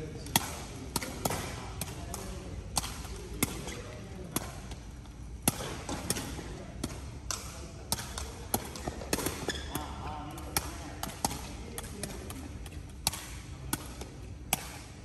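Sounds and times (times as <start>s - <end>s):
ball kicked and bouncing: 5.4s - 9.9s.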